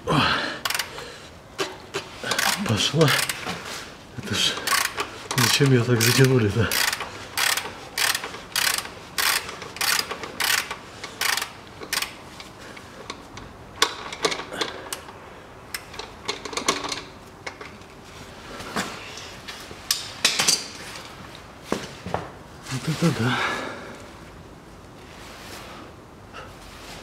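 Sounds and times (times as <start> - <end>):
ratchet wrench clicking: 0.6 - 0.9, 2.3 - 3.4, 4.6 - 12.2.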